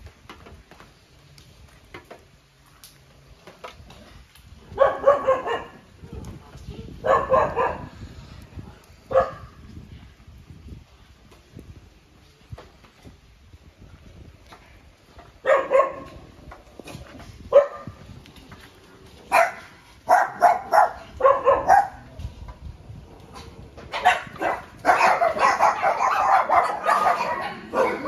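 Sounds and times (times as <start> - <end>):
dogs barking: 4.7 - 5.8, 7.0 - 7.9, 9.1 - 9.5, 15.4 - 16.1, 17.5 - 17.9, 19.3 - 22.0, 23.9 - 28.0.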